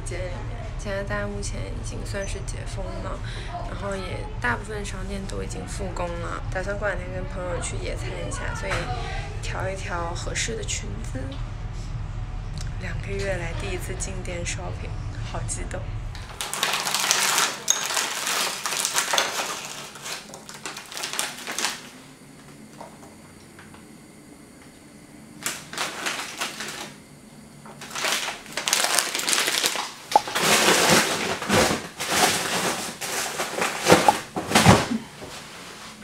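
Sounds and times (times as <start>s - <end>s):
plastic bag crinkling: 16.2s - 22.0s, 25.4s - 27.0s, 27.8s - 34.8s.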